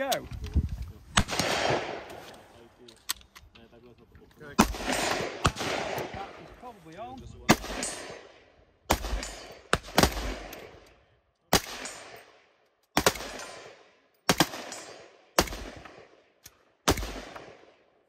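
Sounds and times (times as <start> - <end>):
rifle shots echoing: 1.2 - 2.3, 4.6 - 6.5, 7.4 - 10.9, 11.5 - 18.0.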